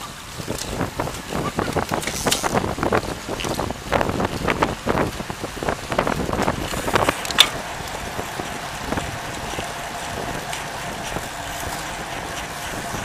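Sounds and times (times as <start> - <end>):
tyre and road rumble: 0.0 - 13.0
wind buffeting microphone: 0.0 - 13.0
faint even hum: 6.6 - 13.0.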